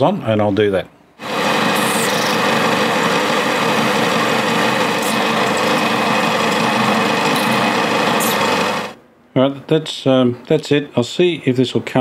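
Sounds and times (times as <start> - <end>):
belt sander grinding metal: 1.2 - 9.0.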